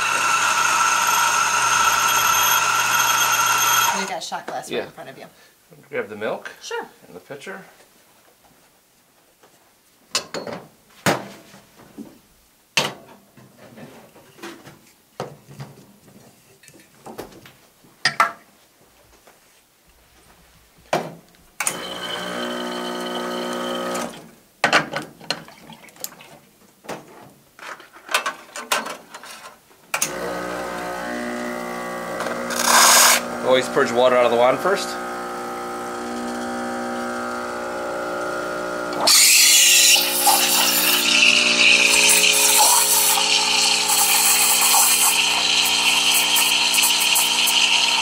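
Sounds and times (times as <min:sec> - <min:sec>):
espresso machine pump buzzing: 0:00.0 - 0:04.1, 0:21.6 - 0:24.2, 0:30.0 - 0:48.0.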